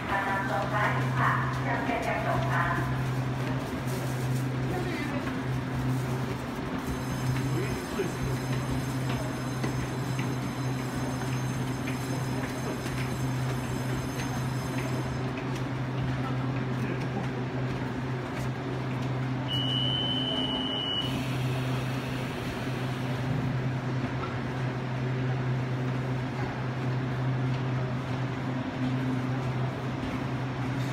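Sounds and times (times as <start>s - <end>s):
train equipment humming: 0.0s - 30.9s
high warning tone: 19.4s - 22.6s.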